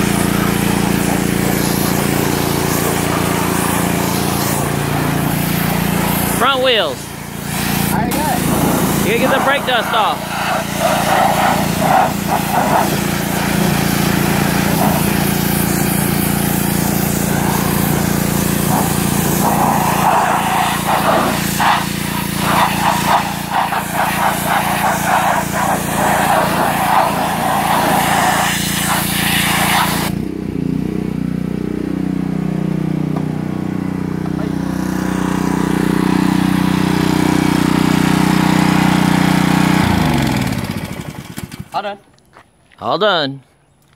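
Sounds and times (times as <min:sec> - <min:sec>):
water jet spraying: 0:00.0 - 0:30.1
small engine running: 0:00.0 - 0:41.8.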